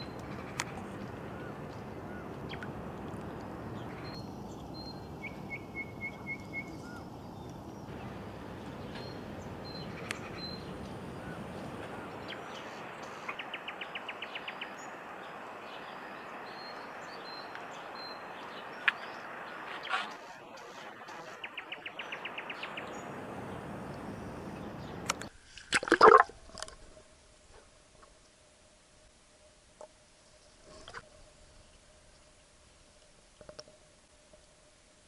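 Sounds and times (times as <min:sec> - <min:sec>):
small birds calling: 0:00.0 - 0:25.3
steady background hiss: 0:00.0 - 0:35.0.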